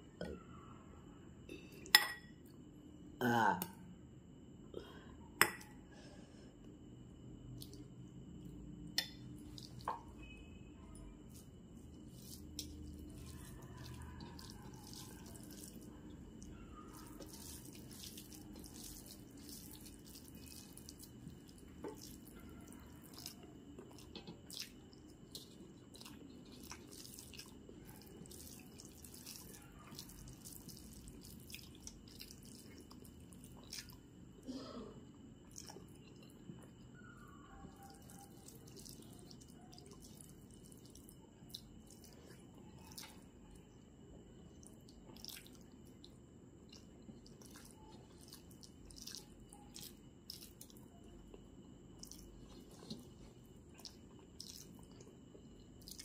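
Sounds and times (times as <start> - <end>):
fingers squishing rice: 11.3 - 34.0.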